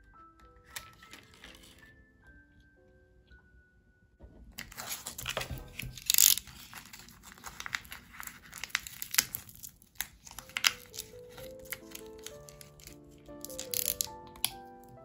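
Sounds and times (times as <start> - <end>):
foil packaging crinkling: 0.6 - 1.9, 4.6 - 14.6
packaging tearing: 0.7 - 1.8, 4.6 - 14.6.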